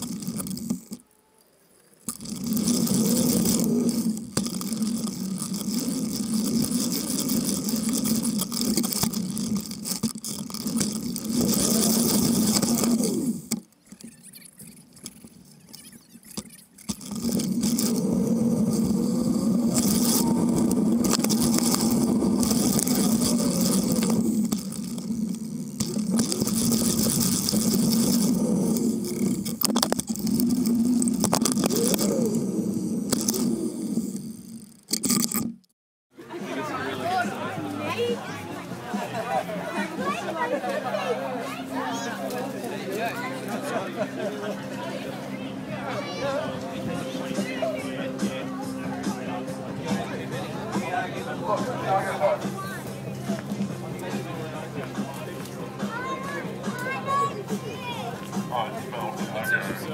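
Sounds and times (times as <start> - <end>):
bicycle tyres and drivetrain rumble: 0.0 - 1.1, 1.8 - 35.7.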